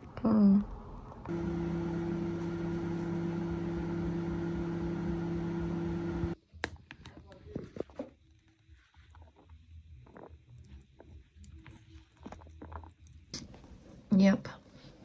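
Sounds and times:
microwave oven humming: 1.3 - 6.4.

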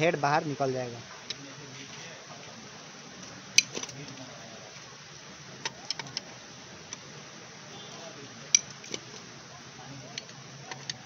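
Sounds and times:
sharp metallic clicks: 8.5 - 9.0.

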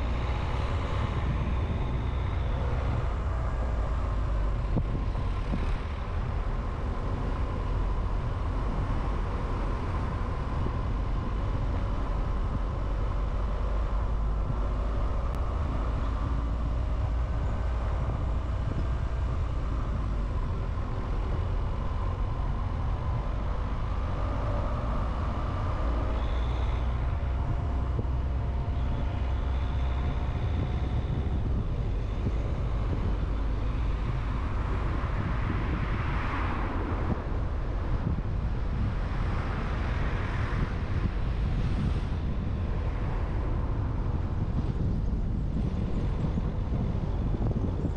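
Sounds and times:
faint whining tones: 0.0 - 35.8
car engine and tyre rumble: 0.0 - 47.9.

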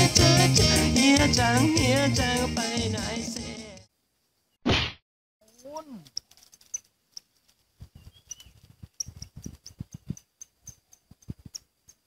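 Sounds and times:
insects chirping: 5.4 - 12.0.

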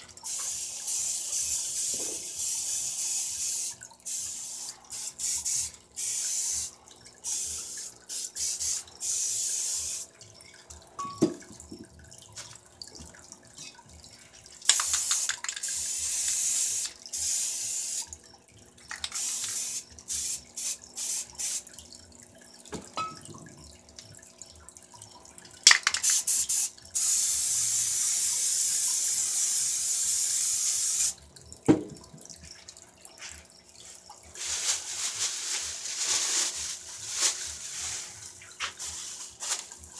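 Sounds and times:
spray paint cans hissing: 0.0 - 10.2, 14.6 - 18.2, 18.8 - 21.7, 25.6 - 31.2, 33.2 - 39.9.

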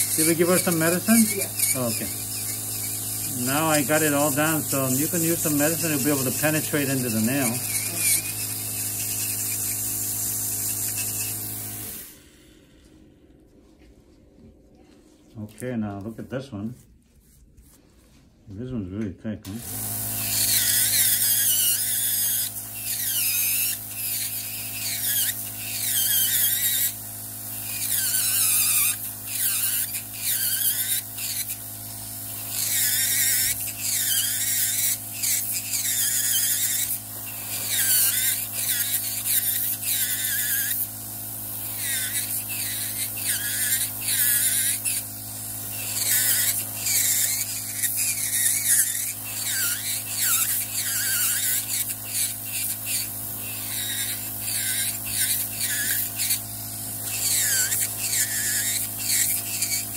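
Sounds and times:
nail drill grinding: 0.0 - 12.4, 19.5 - 59.9.

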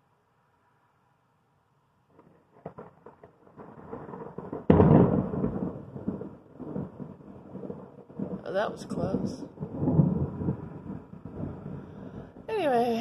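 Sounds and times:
thunder crack and rumble: 2.1 - 13.0.

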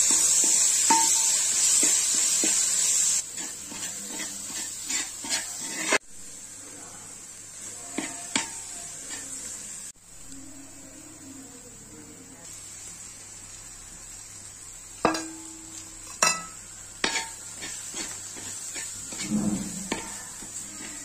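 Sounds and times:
ladle tapping and scraping pan: 0.0 - 6.0, 15.0 - 21.0
onions frying in oil: 0.0 - 21.0.

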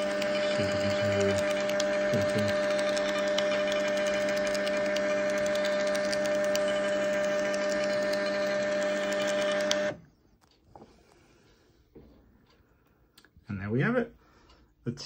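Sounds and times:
label printer whining and ticking: 0.0 - 10.6.

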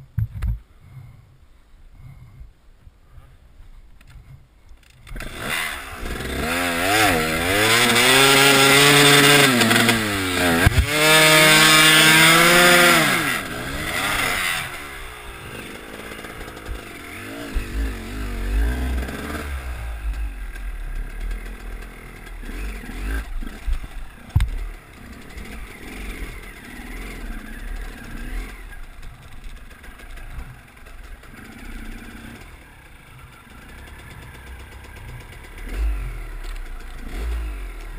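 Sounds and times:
dirt bike engine revving: 4.8 - 37.9.

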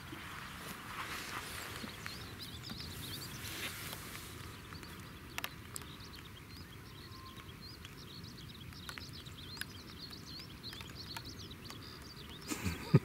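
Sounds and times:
small birds chirping: 0.0 - 13.0
sharp clicks: 7.3 - 12.8.

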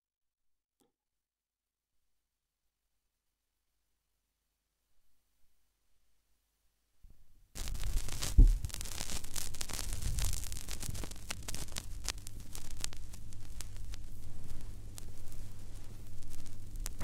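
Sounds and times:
vinyl record crackle: 7.5 - 17.0
low hum: 7.6 - 17.0
sharp clicks and pops: 7.6 - 17.0
loud low thump: 8.3 - 8.8.

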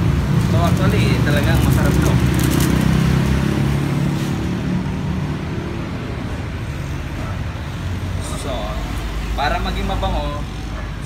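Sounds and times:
vehicle engine rumble: 0.0 - 8.1.

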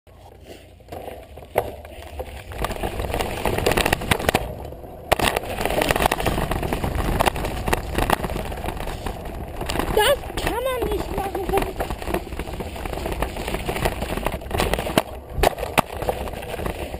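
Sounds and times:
bike rattling: 0.1 - 16.9
tyres on loose dirt: 0.1 - 16.9
bike landing knock: 11.6 - 16.9.

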